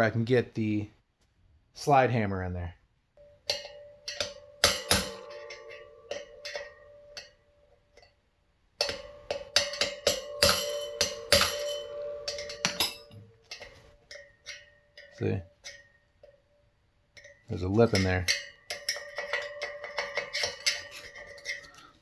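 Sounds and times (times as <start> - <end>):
hammer tapping metal punch: 3.2 - 7.4, 8.8 - 16.4, 17.2 - 22.0
ringing of wheel hub: 3.2 - 8.2, 8.8 - 22.0.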